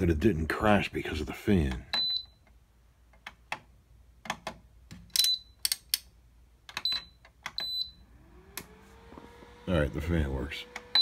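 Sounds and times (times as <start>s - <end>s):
buttons and dial clicking: 1.7s - 7.9s.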